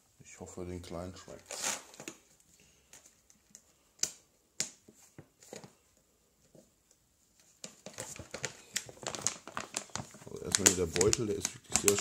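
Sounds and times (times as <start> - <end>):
plastic bag crackling: 7.7 - 12.0.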